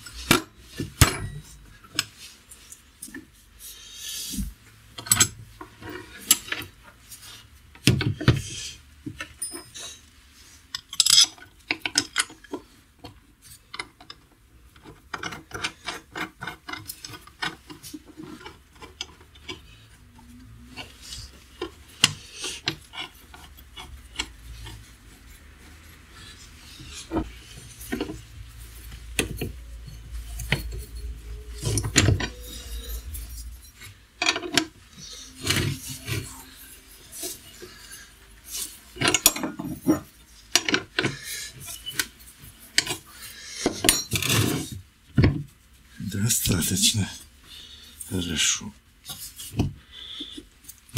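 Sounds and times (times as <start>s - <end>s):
metal scraping and rubbing: 15.0s - 44.8s
metallic clicks and knocks: 26.9s - 34.8s.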